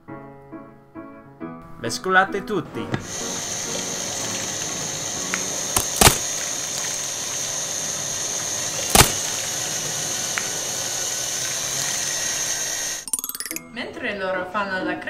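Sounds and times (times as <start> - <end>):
beaters knocking bowl: 2.7 - 13.6
electric hand mixer whining: 2.8 - 13.1.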